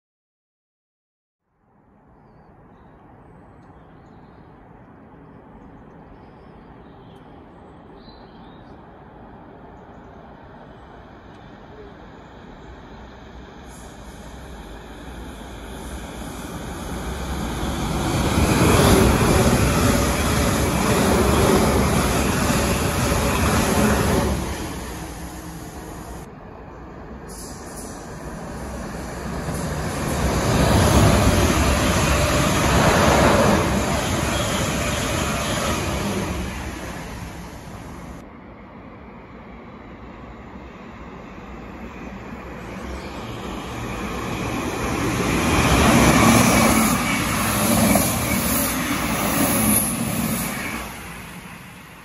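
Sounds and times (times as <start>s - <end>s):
train wheels rumbling on rail: 12.6s - 26.3s, 27.3s - 38.2s, 42.5s - 52.0s.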